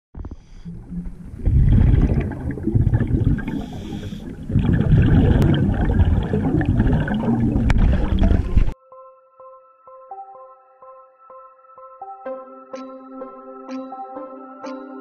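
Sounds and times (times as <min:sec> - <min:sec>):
underwater bubbles gurgling: 0:00.2 - 0:08.8.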